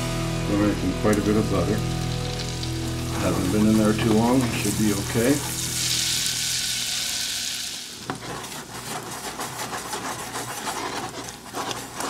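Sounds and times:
garlic sizzling in hot oil: 0:00.0 - 0:09.6.

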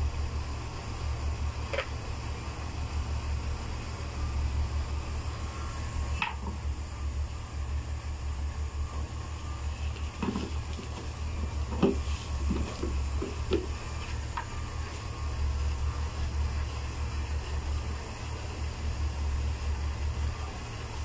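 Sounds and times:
handling knocks and rustles: 0:10.0 - 0:11.1, 0:11.7 - 0:13.8.

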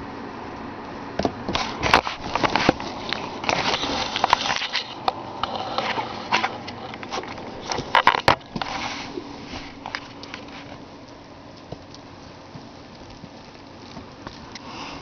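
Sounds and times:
scuffing and rustling on microphone: 0:01.5 - 0:10.9.

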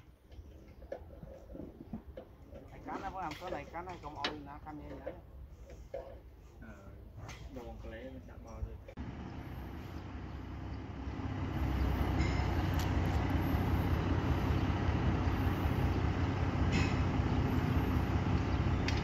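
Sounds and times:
wheel loader diesel engine: 0:08.9 - 0:19.0.

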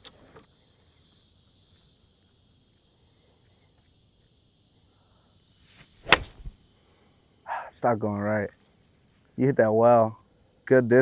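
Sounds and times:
high-pitched insect chirring: 0:00.0 - 0:06.0.

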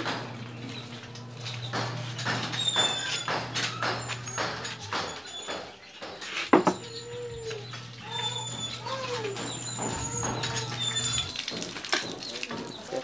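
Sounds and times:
animal cries: 0:02.4 - 0:11.6.

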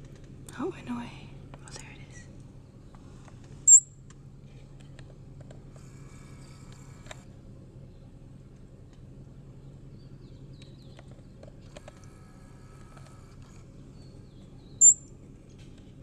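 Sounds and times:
high-pitched animal chirp: 0:03.7 - 0:03.9, 0:14.8 - 0:15.0.

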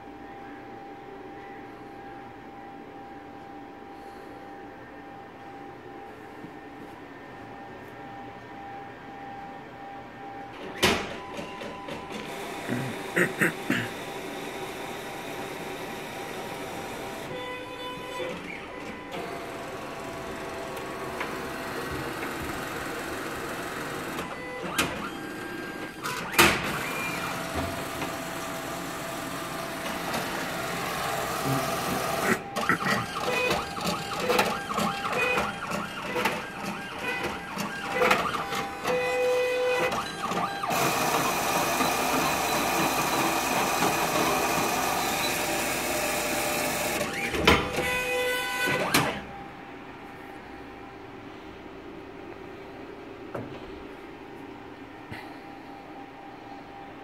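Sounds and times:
machine whirring: 0:10.5 - 0:49.4.

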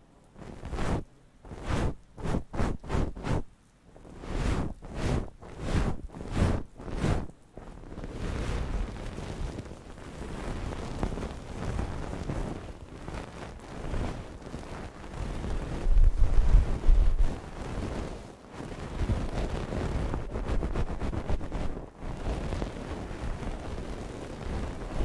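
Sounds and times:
stick scraping on microphone: 0:00.4 - 0:03.5, 0:04.1 - 0:07.3, 0:13.4 - 0:25.0.

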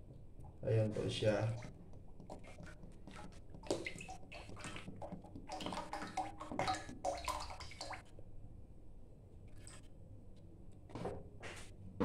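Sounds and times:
oil pouring and glugging: 0:01.5 - 0:08.1.

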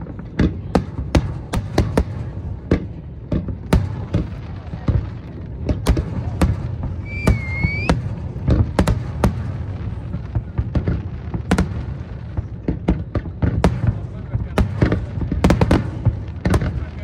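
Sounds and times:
continuous low rumble: 0:00.0 - 0:17.0
fireworks bursting with sharp bangs: 0:00.0 - 0:17.0
rising firework whistle: 0:07.0 - 0:08.0.

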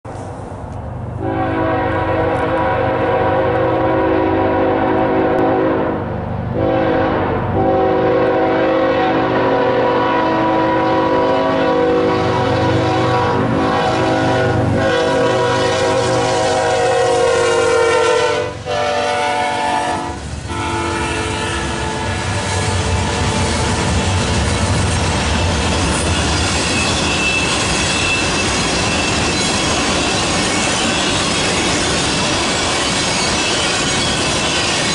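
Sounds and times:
low rumble of train: 0:00.0 - 0:34.9
locomotive air horn blasts: 0:01.2 - 0:06.0, 0:06.6 - 0:23.1.

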